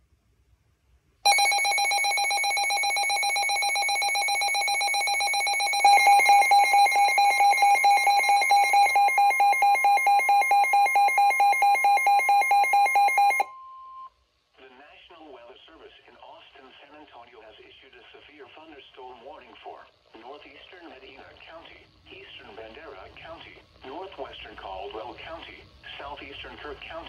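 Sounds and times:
rapid high electronic beeping: 1.3 - 13.4
steady high alarm tone: 1.3 - 13.6.

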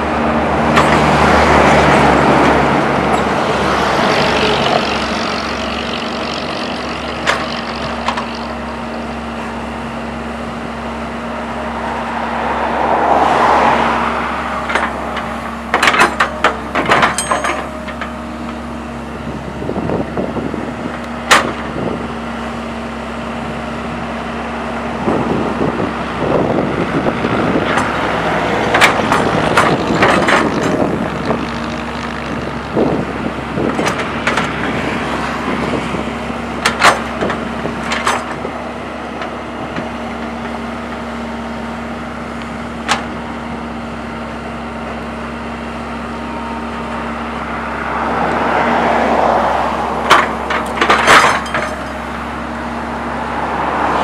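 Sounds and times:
excavator diesel engine running: 0.0 - 54.0
passing road vehicle: 0.0 - 54.0
excavator bucket knocks and clanks: 14.6 - 18.2, 21.2 - 21.8, 28.6 - 31.4, 33.6 - 34.8, 36.6 - 38.5, 50.0 - 52.0.

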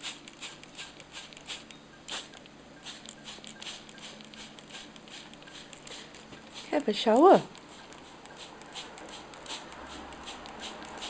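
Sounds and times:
spray bottle spritzing: 0.0 - 11.0.

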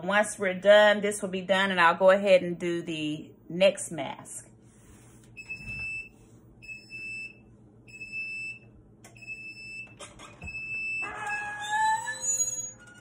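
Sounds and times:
press lid squealing: 10.1 - 13.0.

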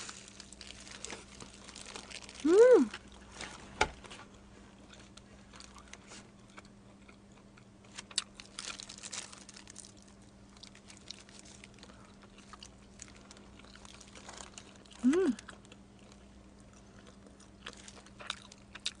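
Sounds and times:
steady low hum: 0.0 - 19.0
crunching on pizza: 4.2 - 19.0.

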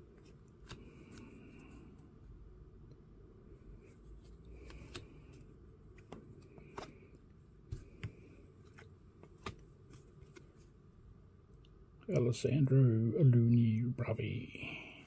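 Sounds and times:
low room hum: 0.0 - 15.0
cards sliding off a stack: 4.5 - 5.4.

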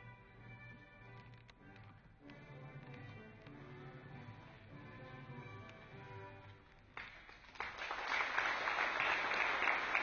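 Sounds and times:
audience applause: 7.0 - 10.0.

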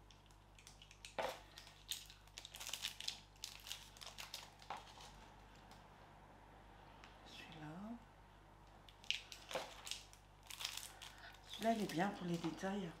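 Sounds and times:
packaging crinkling: 0.0 - 5.8, 8.9 - 13.0.

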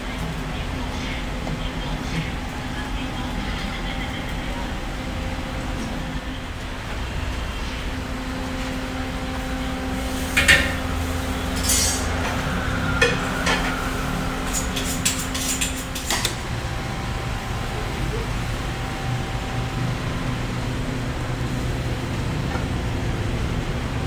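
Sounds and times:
kitchen equipment humming: 0.0 - 24.0
metal utensils clinking: 11.5 - 12.4, 13.0 - 16.4.

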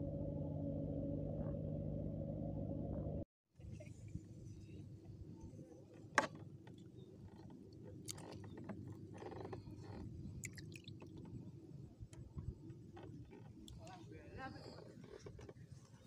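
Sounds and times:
steady low rumble: 0.0 - 5.6
wet squelching and splashes: 10.4 - 11.1.

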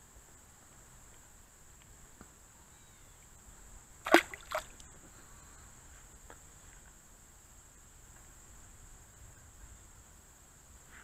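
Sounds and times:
fish splashing in water: 4.0 - 4.8.

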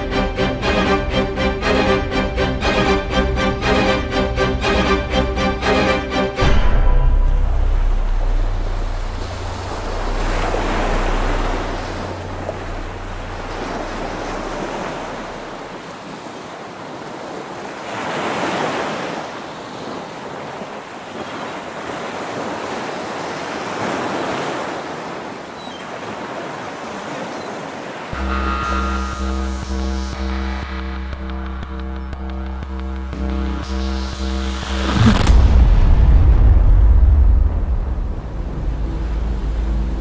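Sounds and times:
low music drone: 0.0 - 15.8, 28.2 - 40.0
waves breaking on beach: 7.8 - 28.2.

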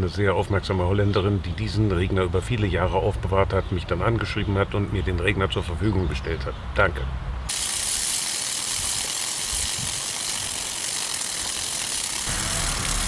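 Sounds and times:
sprinkler drive ratcheting: 7.5 - 13.0
water jet hissing: 7.5 - 13.0.

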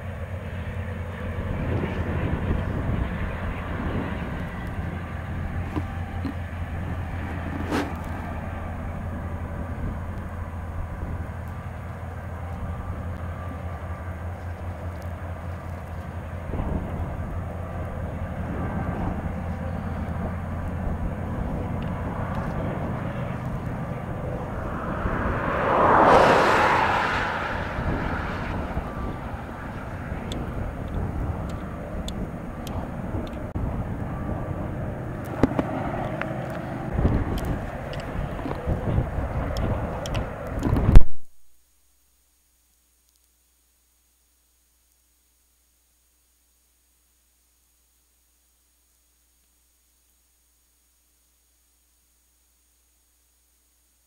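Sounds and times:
freight train rumbling past: 0.0 - 40.6
diesel locomotive engine drone: 0.0 - 41.0.

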